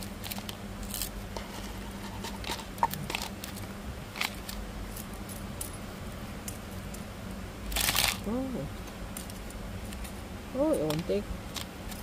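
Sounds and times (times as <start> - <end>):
gravel grains clicking: 0.0 - 5.1.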